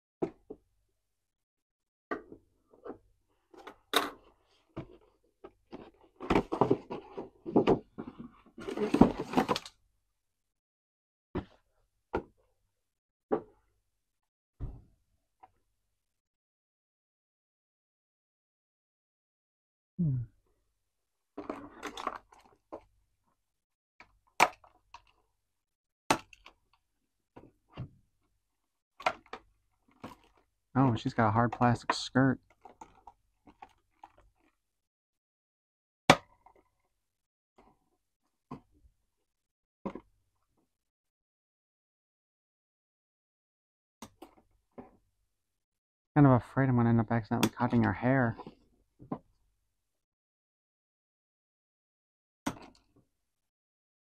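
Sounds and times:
packaging rustling and scraping: 4.4 - 9.7.

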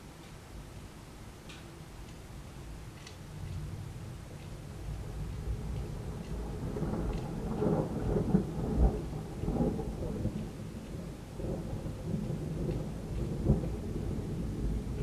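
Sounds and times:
thunder rumbling: 3.6 - 15.0.

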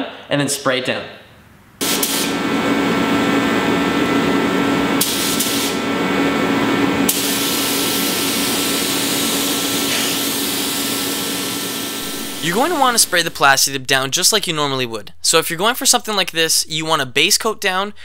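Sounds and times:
steady hum: 1.5 - 18.0
air spray gun hissing: 1.8 - 2.4, 5.0 - 5.9, 7.1 - 13.4.

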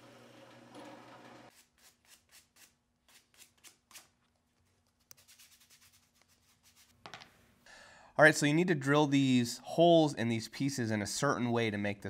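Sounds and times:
drill press motor humming: 0.0 - 1.5.

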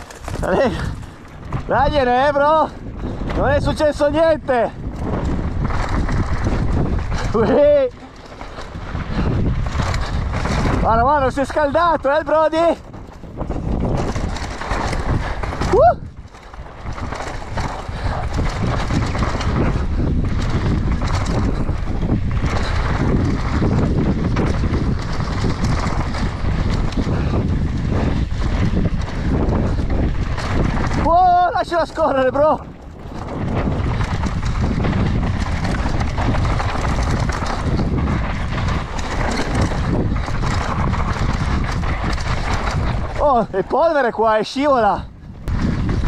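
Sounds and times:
bike tyres clattering on dirt: 0.0 - 46.0
wind on microphone: 0.0 - 46.0.

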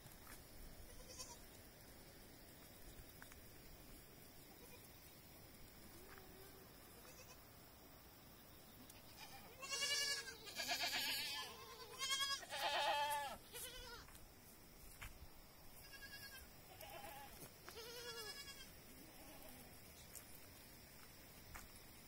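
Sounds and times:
goat kids bleating: 0.9 - 1.4, 4.5 - 4.9, 6.0 - 7.4, 8.9 - 14.2, 15.8 - 19.7.

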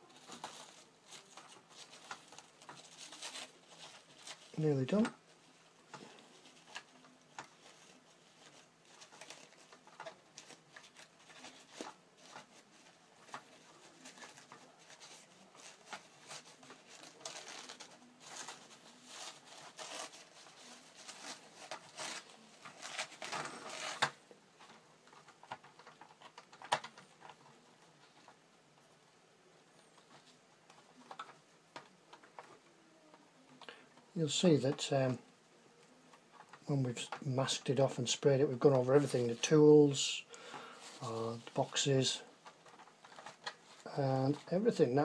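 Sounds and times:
paper and tape crinkling: 0.0 - 28.8, 29.7 - 35.2, 35.8 - 45.0.

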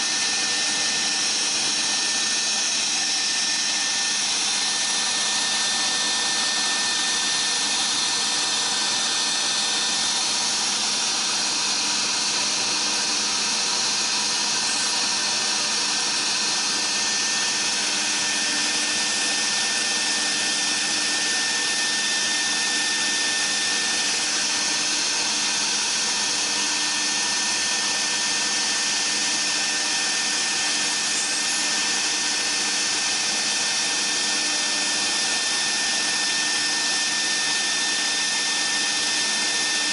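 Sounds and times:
high spindle whine: 0.0 - 39.9
router bit cutting hiss: 0.0 - 39.9.

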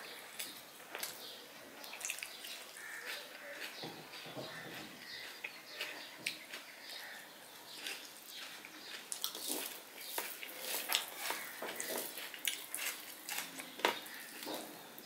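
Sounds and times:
chewing with wet mouth clicks: 1.8 - 4.2, 5.0 - 7.1, 7.7 - 14.5
fingers mixing rice on steel plate: 7.8 - 14.7.

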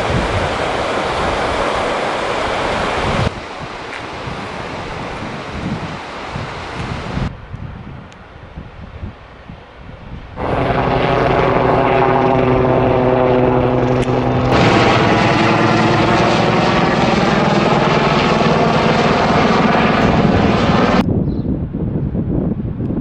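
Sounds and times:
helicopter flying past: 10.4 - 21.0.

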